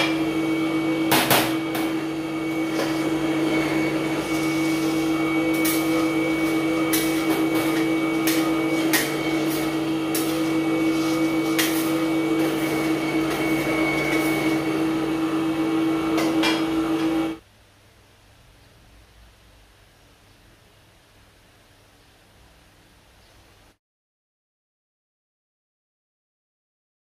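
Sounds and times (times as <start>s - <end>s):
grinder humming: 0.0s - 17.4s.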